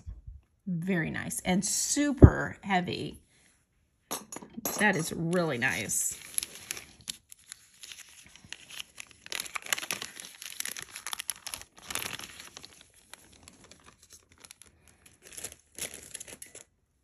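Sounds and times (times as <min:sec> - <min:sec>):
packaging crinkling: 0:05.7 - 0:16.7.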